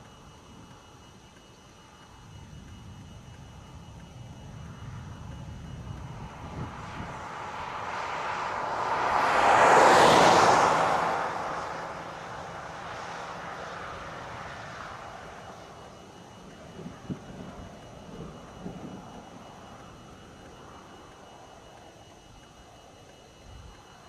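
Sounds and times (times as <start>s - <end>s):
vehicle passing by: 6.2s - 15.6s.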